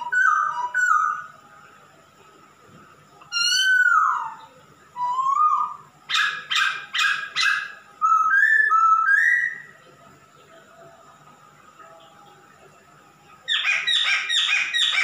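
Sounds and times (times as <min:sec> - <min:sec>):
bird singing whistled phrases: 0:00.0 - 0:01.3, 0:03.3 - 0:09.7.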